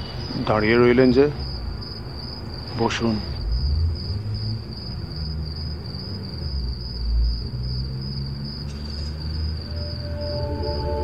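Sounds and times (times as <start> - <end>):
crickets chirping: 0.0 - 11.0
low rumbling drone: 3.3 - 5.1, 9.4 - 11.0.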